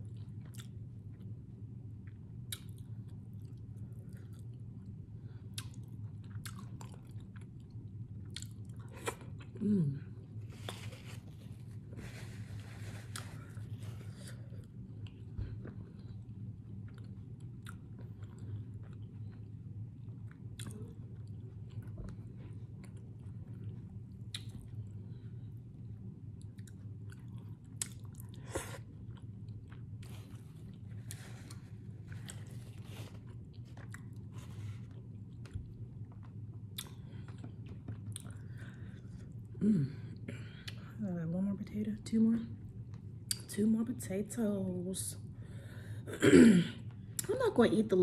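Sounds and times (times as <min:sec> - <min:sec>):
chewing food: 0:00.0 - 0:09.6, 0:12.4 - 0:25.3, 0:26.3 - 0:39.6
steady low hum: 0:00.0 - 0:48.0.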